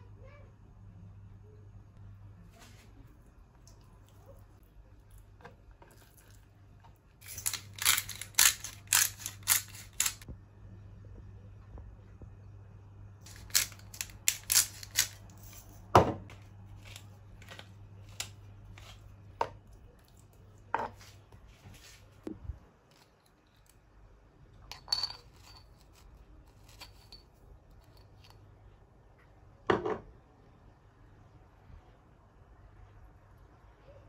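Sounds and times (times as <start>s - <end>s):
utensils and dishes clicking: 7.2s - 10.3s, 13.3s - 15.8s
low hum: 7.2s - 20.6s.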